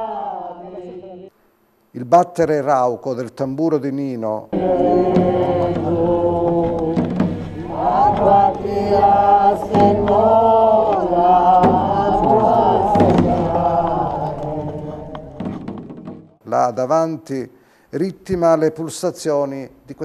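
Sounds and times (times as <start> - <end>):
group singing devotional chant: 0.0 - 1.3, 4.5 - 15.8
hand drum beaten with sticks: 4.6 - 16.4.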